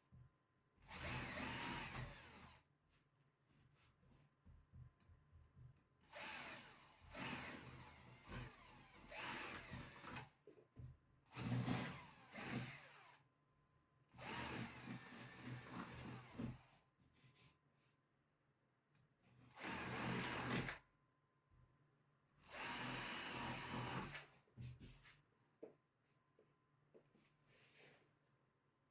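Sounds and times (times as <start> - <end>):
cordless drill drilling into wall: 0.8 - 2.6, 6.0 - 10.4, 11.3 - 13.2, 14.2 - 16.7, 19.5 - 20.8, 22.4 - 24.4.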